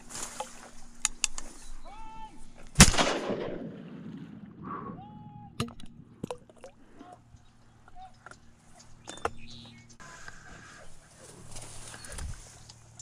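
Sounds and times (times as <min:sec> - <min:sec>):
shotgun blast with echo: 0:02.8 - 0:04.6.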